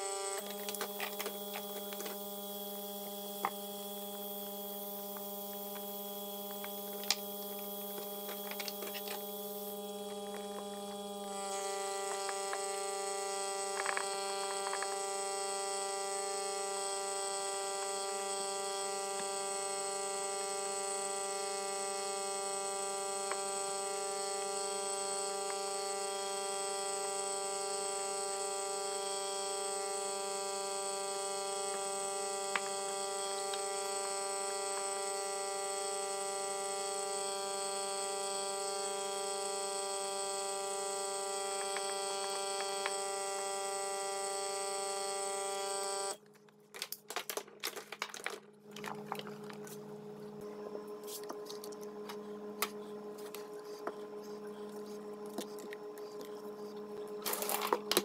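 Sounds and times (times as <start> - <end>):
vacuum pump humming: 0.0 - 46.2, 47.3 - 58.0
plastic taps and crinkles: 8.0 - 9.2, 46.2 - 49.8.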